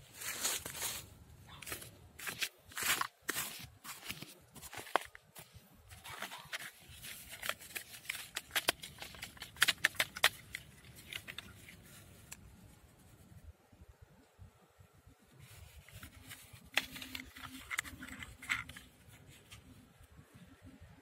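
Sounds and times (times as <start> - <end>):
hand digging through soil: 0.0 - 12.4.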